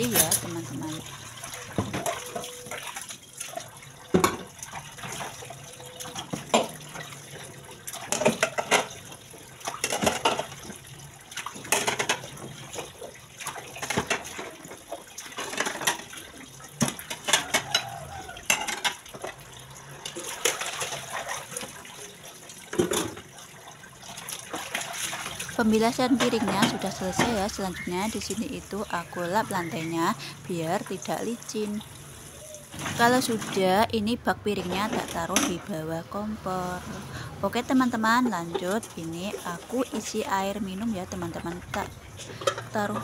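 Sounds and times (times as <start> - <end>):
dishes clinking and clattering: 0.0 - 1.0, 1.7 - 3.0, 4.1 - 7.3, 7.9 - 21.9, 22.7 - 23.3, 26.0 - 28.4, 34.6 - 35.7, 41.4 - 43.0
water running from a tap: 0.0 - 33.8.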